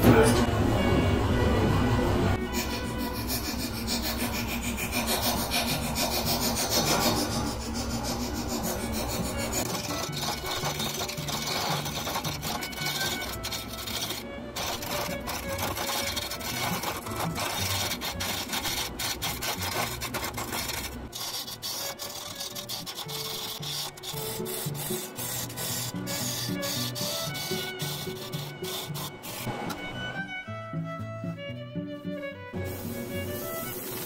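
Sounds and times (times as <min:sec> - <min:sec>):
chisel scraping spinning wood: 0:02.5 - 0:29.5
wood lathe rumbling: 0:02.8 - 0:29.8.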